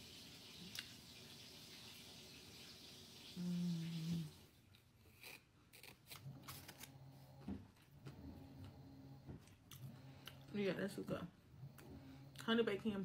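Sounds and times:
quiet low hum: 3.3 - 13.0
person humming mmm: 3.4 - 4.4.

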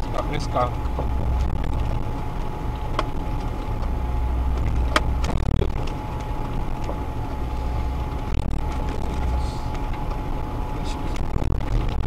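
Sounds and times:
off-road vehicle engine rumbling: 0.0 - 12.0
thin steady whine: 0.0 - 12.0
sharp knocks from bumpy ride: 0.9 - 7.0.

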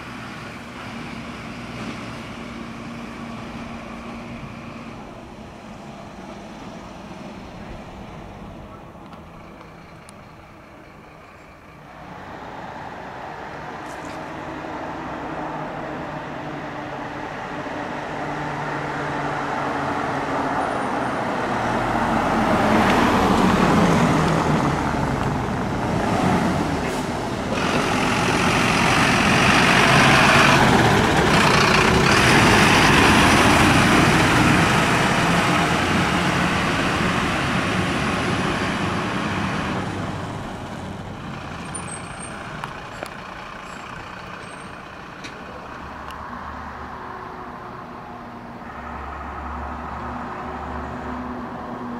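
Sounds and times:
fire trucks driving past: 0.0 - 51.9.

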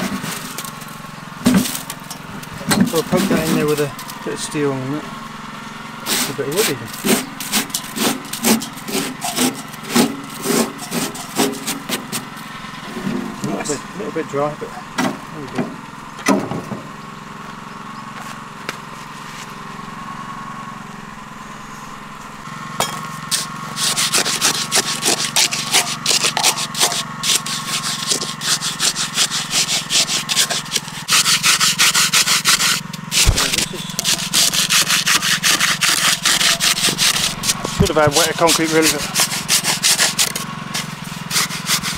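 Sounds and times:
metal bar scraping in gritty concrete: 0.0 - 4.4, 6.0 - 13.8, 22.8 - 41.9
steady low hum: 0.0 - 41.9.

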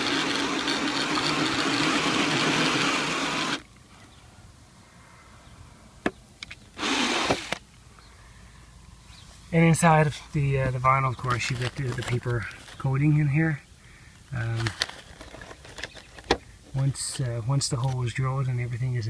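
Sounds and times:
drill with hole saw grinding: 0.0 - 3.6, 6.8 - 7.6.

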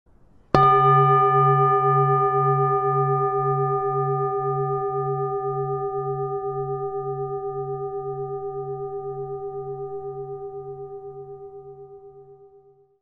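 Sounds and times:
singing bowl ringing: 0.5 - 13.0.

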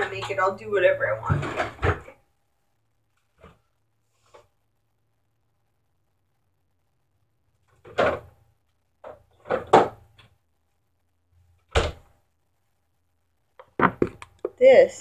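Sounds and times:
cupboard doors and drawers knocking: 13.8 - 14.2.

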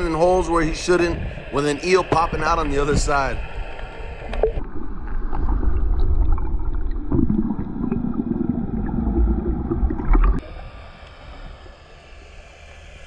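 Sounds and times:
underwater hiss: 0.0 - 4.7, 10.4 - 13.0
underwater rumble and gurgle: 0.0 - 13.0.

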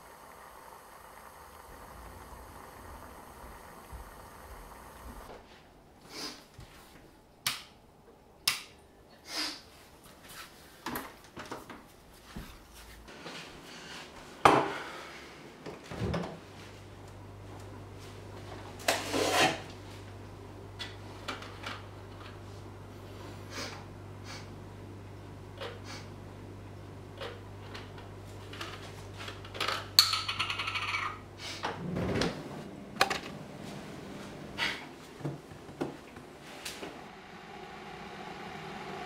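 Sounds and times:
low steady hum: 14.9 - 39.0
kitchen clicks and knocks: 29.6 - 31.2.

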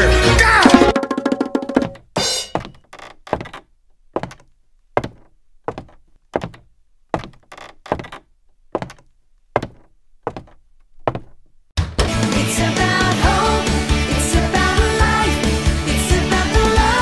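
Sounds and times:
hollow knocks with ringing tail: 1.8 - 2.9.

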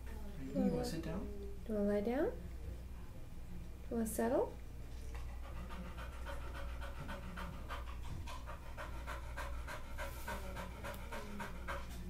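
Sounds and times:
dog panting rapidly: 5.1 - 12.0.

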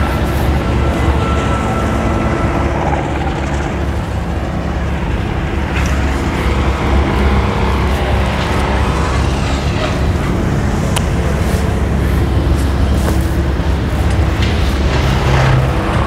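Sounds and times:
boat engine drone: 0.0 - 16.0.

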